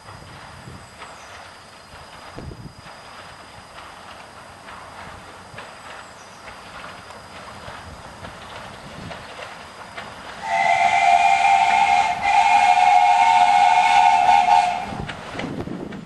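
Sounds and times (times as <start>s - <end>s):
steam engine running: 0.0s - 15.6s
steam locomotive whistle: 10.4s - 15.1s.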